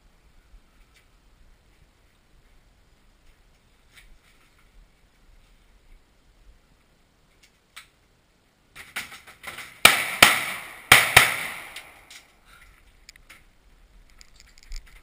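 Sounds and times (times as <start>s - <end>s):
gunshots with echo: 9.8s - 12.1s.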